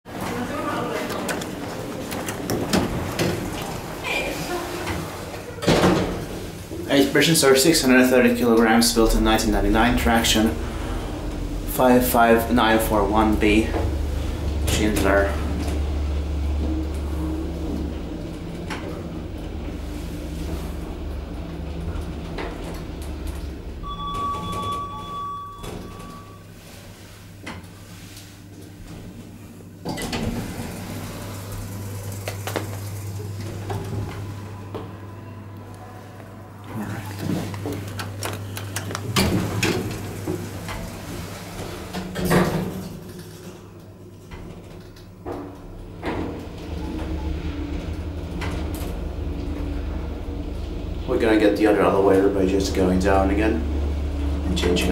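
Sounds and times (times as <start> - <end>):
elevator doors sliding open: 0.1 - 54.9
elevator humming: 0.1 - 54.9
held electronic tone: 23.8 - 26.5.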